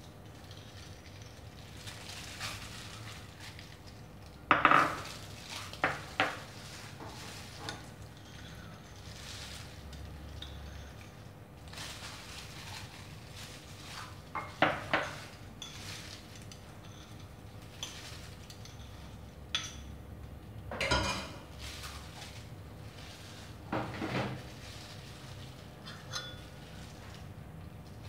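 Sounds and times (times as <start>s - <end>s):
knife scraping ceramic bowl: 25.8s - 26.4s
bowls clinking: 25.8s - 26.6s.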